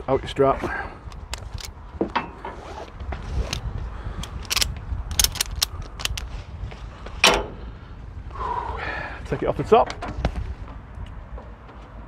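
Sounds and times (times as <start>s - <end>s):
ratchet strap clicks and rattles: 1.1s - 1.8s, 3.4s - 6.4s.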